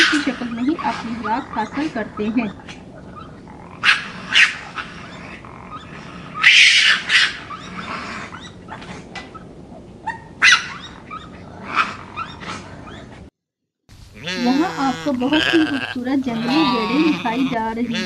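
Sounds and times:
raccoon squeals and chitters: 0.0s - 9.5s, 10.1s - 13.1s.

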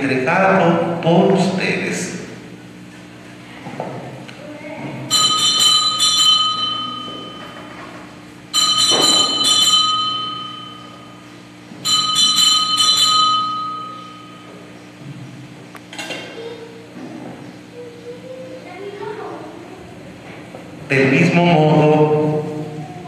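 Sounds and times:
altar bells ringing: 5.1s - 14.7s.

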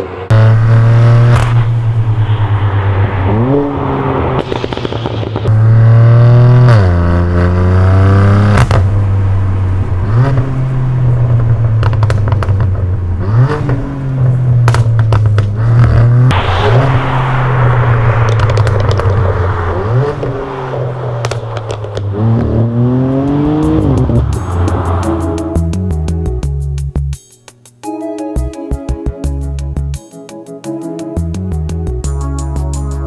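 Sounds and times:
car engine revving hard: 0.0s - 25.9s
exhaust pops and crackles: 0.3s - 2.3s, 4.3s - 24.8s.

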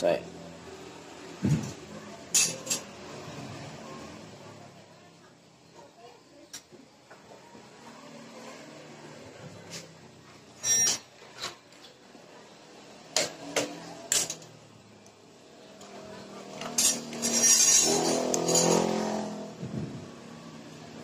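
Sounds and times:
metal rattling and scraping: 16.4s - 19.2s
metal clicks and clinks: 16.6s - 19.0s.

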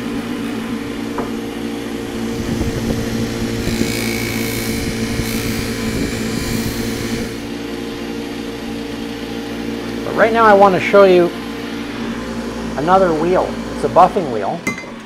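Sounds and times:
buffing wheel motor hum: 0.0s - 13.9s.

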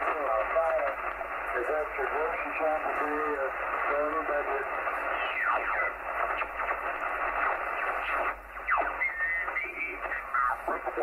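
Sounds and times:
radio band hiss: 0.0s - 11.0s
garbled radio chirp: 1.9s - 11.0s
radio signals whistling down: 4.8s - 10.9s.

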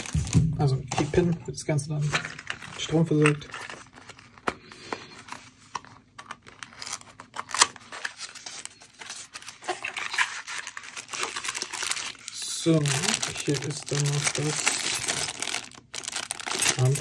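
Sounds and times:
plastic bag rustling: 6.4s - 17.0s.

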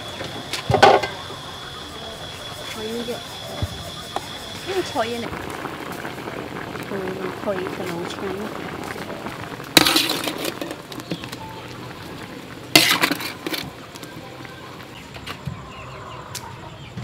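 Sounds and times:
metal utensil scraping in wok: 9.8s - 10.8s, 12.7s - 13.7s.

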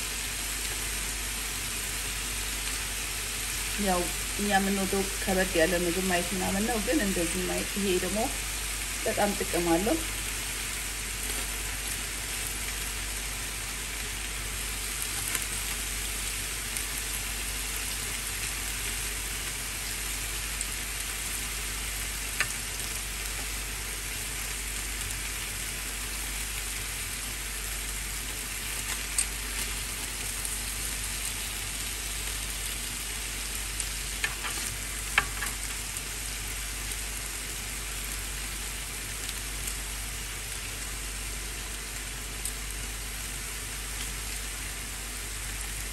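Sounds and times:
chicken sizzling in a pan: 0.0s - 45.9s
utensils clicking on pan: 34.2s - 35.8s.

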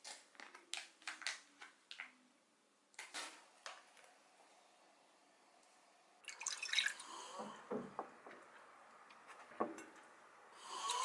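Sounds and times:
water pouring and splashing: 6.2s - 7.6s
liquid pouring into container: 6.2s - 7.9s.

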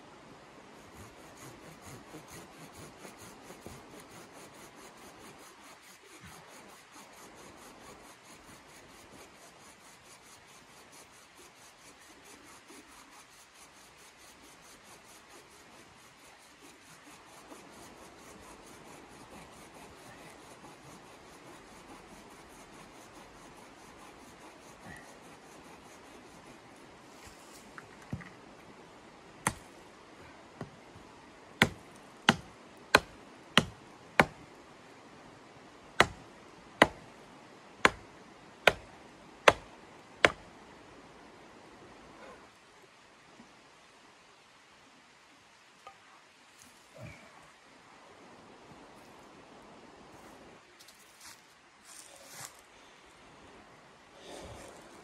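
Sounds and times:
hand saw cutting log: 0.8s - 26.7s, 31.6s - 34.4s, 36.0s - 36.2s, 36.8s - 37.0s, 37.8s - 38.0s, 38.6s - 40.4s.

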